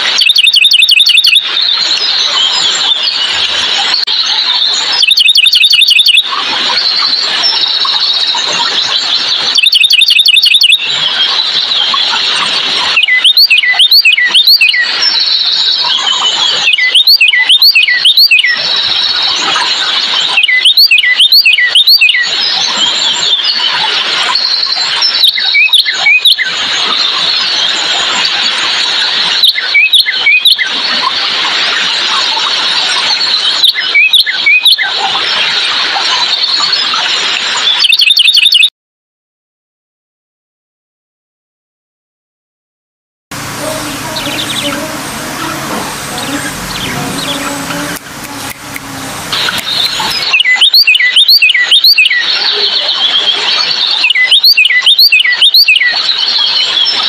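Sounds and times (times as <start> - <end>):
bird calling in sharp high notes: 0.0 - 3.1, 4.1 - 12.2, 12.9 - 23.7, 43.4 - 56.2
steady high hiss: 43.4 - 50.3.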